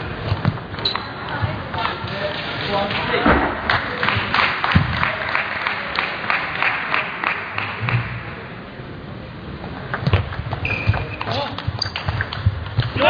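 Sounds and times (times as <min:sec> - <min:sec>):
short high squeak: 0:10.6 - 0:12.0.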